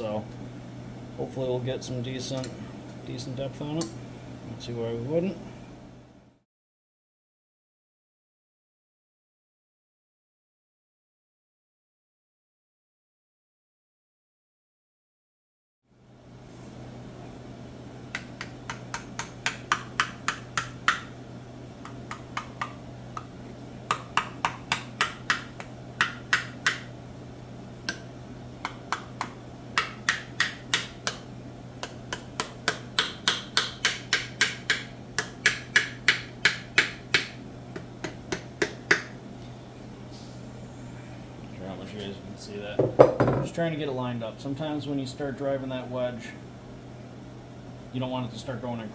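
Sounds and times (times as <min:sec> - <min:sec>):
hammer knocking wooden wedge: 0:18.2 - 0:21.1, 0:23.9 - 0:26.9, 0:28.6 - 0:31.2, 0:31.8 - 0:39.1.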